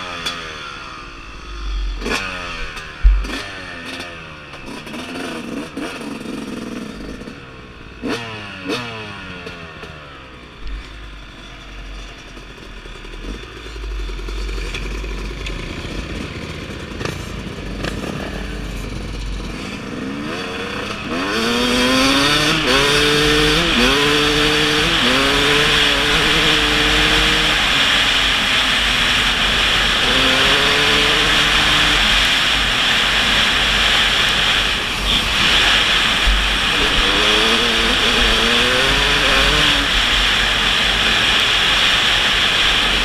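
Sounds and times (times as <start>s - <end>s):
dirt bike engine accelerating: 0.0s - 43.0s.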